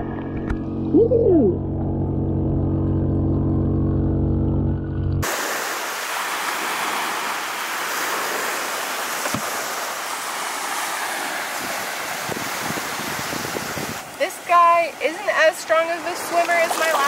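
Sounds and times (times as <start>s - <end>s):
underwater aerator pump hum: 0.0s - 10.9s
gentle surf washing on beach: 5.2s - 17.0s.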